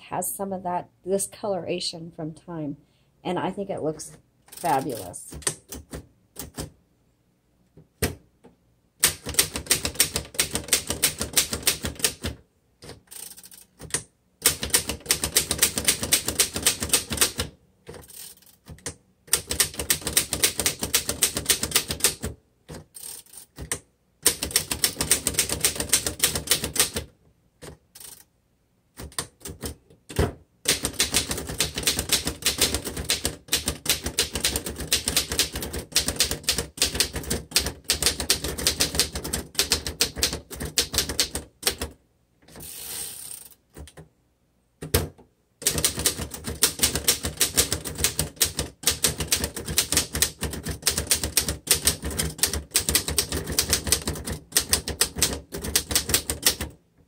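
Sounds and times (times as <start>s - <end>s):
typewriter keys clacking: 4.5s - 6.7s, 9.0s - 28.3s, 30.7s - 41.9s, 44.9s - 56.7s.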